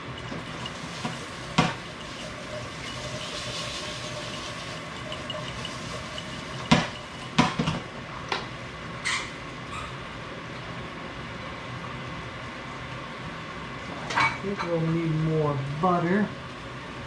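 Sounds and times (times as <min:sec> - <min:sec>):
potatoes frying in a skillet: 0:00.0 - 0:08.0.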